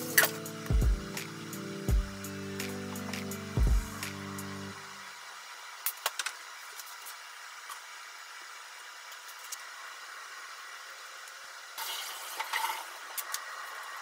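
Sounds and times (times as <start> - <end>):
food sizzling in frying pan: 11.7 - 14.0.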